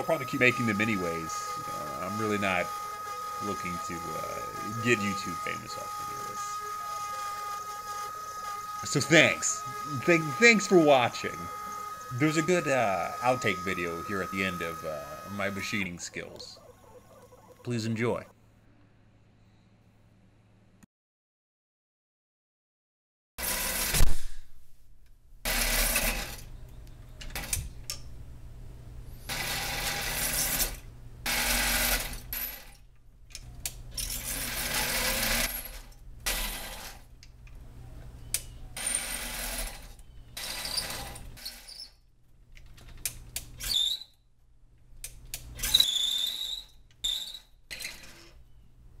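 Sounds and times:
lathe tool scraping metal: 0:00.0 - 0:16.2, 0:38.8 - 0:41.8
lathe motor hum: 0:00.0 - 0:17.7
high squeals: 0:00.0 - 0:17.8, 0:43.6 - 0:44.2, 0:45.6 - 0:48.6.

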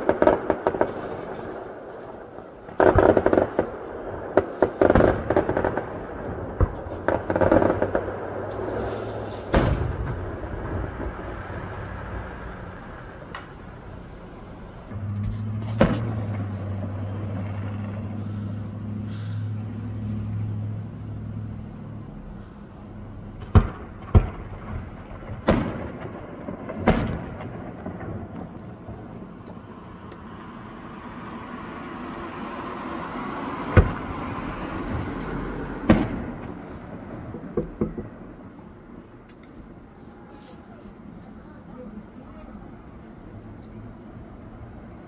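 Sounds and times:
distant fireworks bangs: 0:00.0 - 0:19.2, 0:23.0 - 0:30.1, 0:33.0 - 0:42.0.

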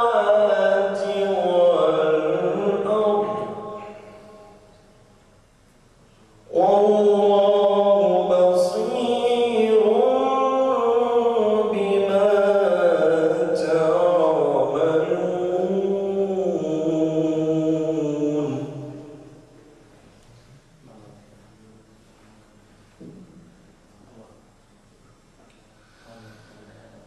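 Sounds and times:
man chanting melodically: 0:00.0 - 0:04.7, 0:06.4 - 0:19.6, 0:25.9 - 0:27.0.

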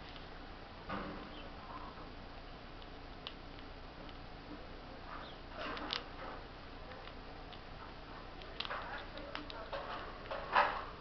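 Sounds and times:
squirrel gnawing corn: 0:01.2 - 0:11.0.

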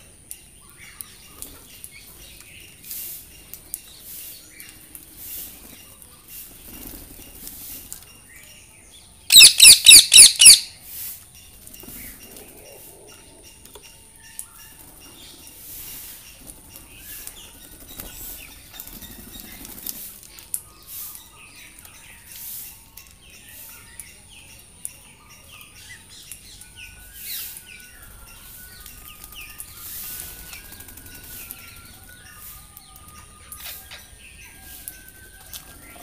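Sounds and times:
parakeets chirping and calling: 0:09.3 - 0:10.7.

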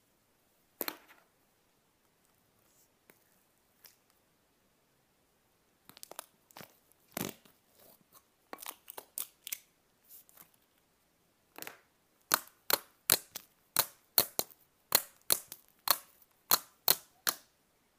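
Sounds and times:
sharp pops of slime: 0:12.3 - 0:17.5.

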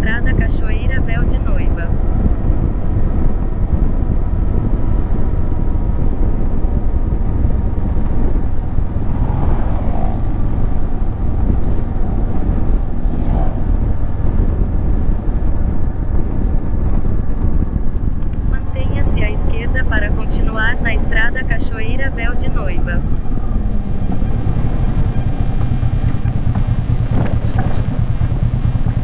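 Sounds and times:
motorcycle engine cruising: 0:00.0 - 0:29.0
wind rumble on microphone: 0:00.0 - 0:29.0
motorcycle passing by: 0:07.5 - 0:15.2.

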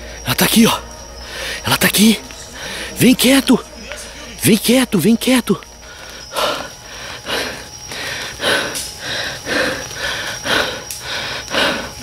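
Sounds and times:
person panting: 0:05.9 - 0:12.0.

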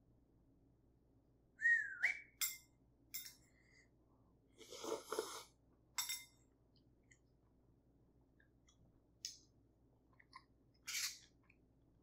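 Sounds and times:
slurping noodles: 0:04.6 - 0:05.6.

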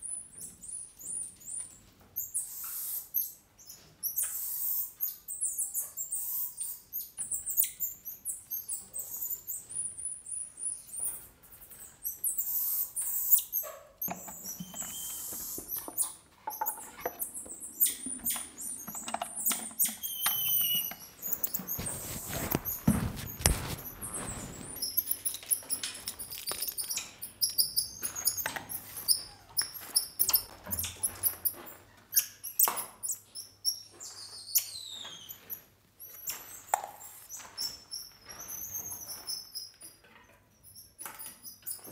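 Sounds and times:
monkeys chirping and squeaking: 0:00.1 - 0:40.0, 0:40.6 - 0:41.9
clicks and scratching: 0:15.6 - 0:31.6.

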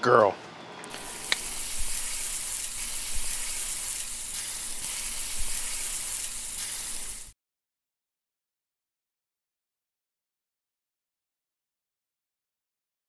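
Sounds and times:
oil popping: 0:00.9 - 0:07.3
food frying in hot oil: 0:01.0 - 0:07.4.

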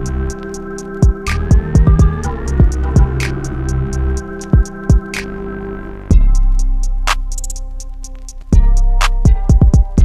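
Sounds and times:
electronic music with steady beat: 0:00.0 - 0:10.0
drum hits: 0:01.0 - 0:03.4.

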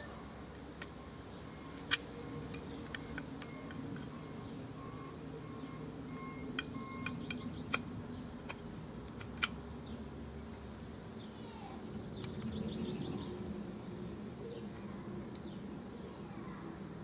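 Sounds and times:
clicks and taps of parts: 0:01.8 - 0:04.3, 0:06.1 - 0:09.6.

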